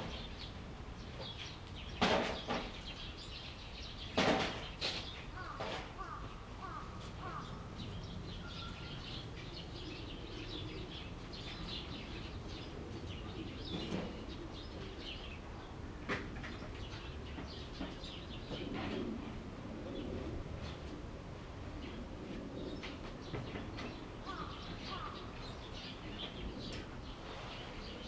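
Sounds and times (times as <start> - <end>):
small birds chirping: 0.0 - 19.1, 21.8 - 28.0
sharp knocks: 2.0 - 2.8, 4.2 - 5.0.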